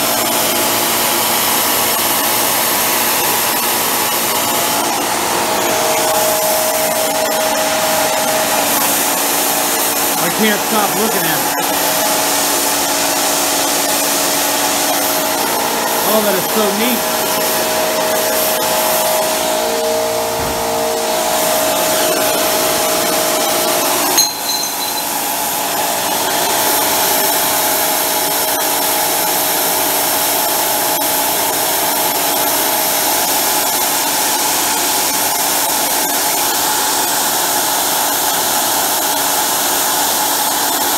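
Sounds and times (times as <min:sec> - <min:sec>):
jet burner roaring with whine: 0:00.1 - 0:24.2.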